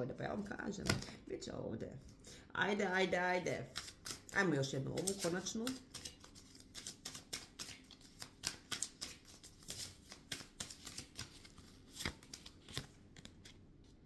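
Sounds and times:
cards being shuffled: 3.6s - 14.0s.

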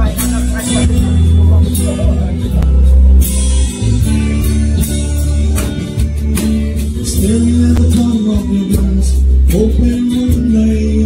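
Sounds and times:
acoustic guitar: 0.0s - 11.0s
heavy bass: 0.0s - 11.0s
person singing: 4.2s - 11.0s.

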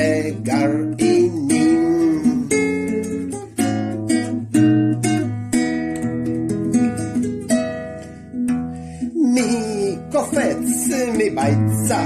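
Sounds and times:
strummed string instrument chords: 0.0s - 12.0s.

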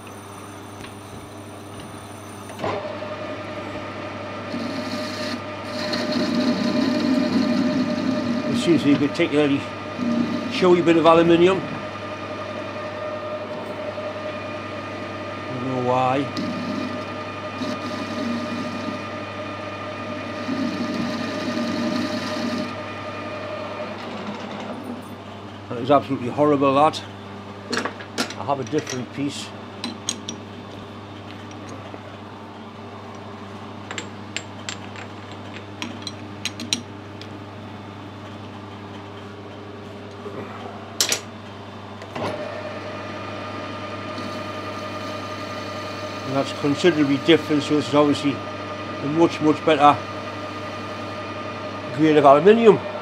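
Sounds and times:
lathe whining: 0.0s - 26.0s, 42.0s - 53.0s.

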